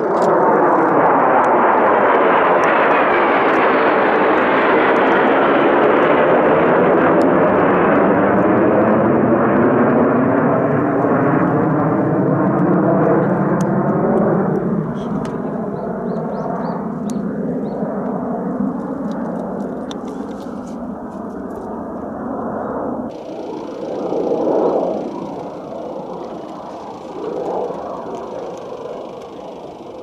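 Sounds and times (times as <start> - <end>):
fighter jets flying overhead: 0.0 - 30.0.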